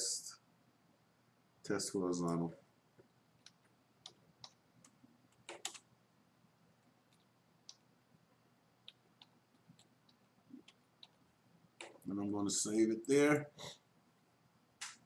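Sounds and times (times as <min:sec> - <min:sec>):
computer keyboard keystrokes: 0:03.4 - 0:05.8, 0:11.8 - 0:12.0.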